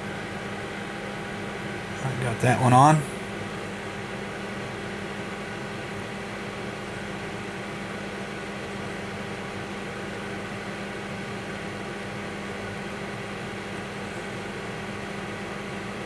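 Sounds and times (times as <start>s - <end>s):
low even hum: 1.5s - 3.8s.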